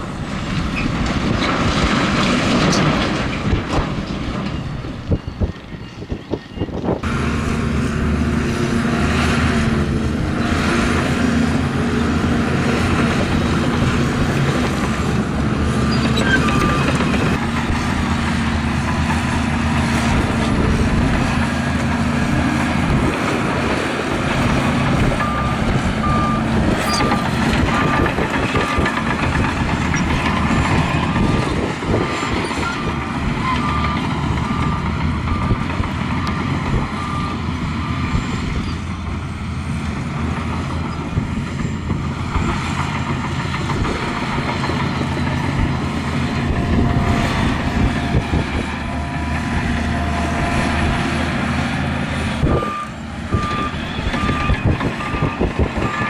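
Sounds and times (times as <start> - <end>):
heavy machinery running: 0.0 - 56.0
reversing alarm beeping: 25.1 - 29.2, 32.4 - 35.8, 36.8 - 39.3, 52.4 - 56.0.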